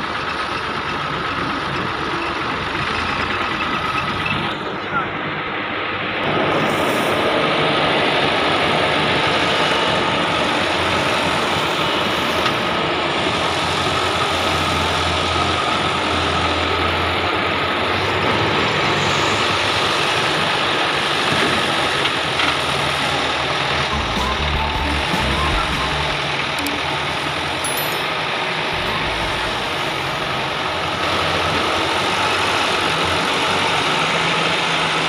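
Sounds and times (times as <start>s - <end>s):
tractor engine running: 0.0s - 4.4s, 19.8s - 33.8s.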